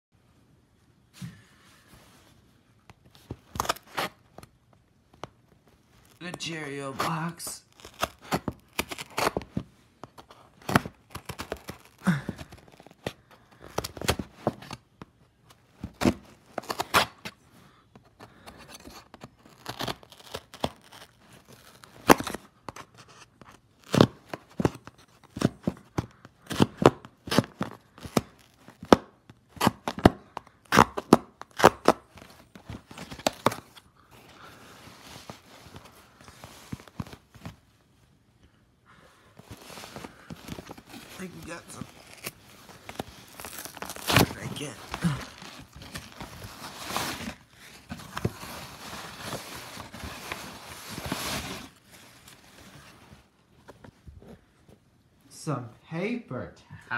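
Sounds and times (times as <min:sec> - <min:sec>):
cardboard scraping and tearing: 0:06.9 - 0:09.6, 0:10.2 - 0:14.8, 0:18.3 - 0:30.1, 0:39.4 - 0:53.0
knife stabbing cardboard: 0:43.4 - 0:46.1.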